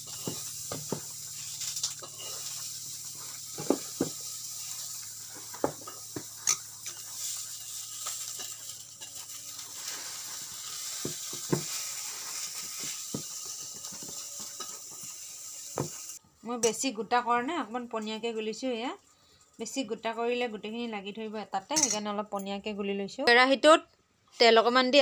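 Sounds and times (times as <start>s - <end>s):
batter stirring and slapping: 0.0s - 15.1s.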